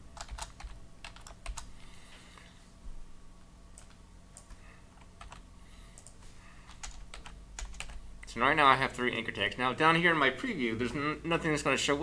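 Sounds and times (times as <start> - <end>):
computer keyboard typing: 0.2 - 1.7, 3.8 - 5.4, 6.0 - 8.0.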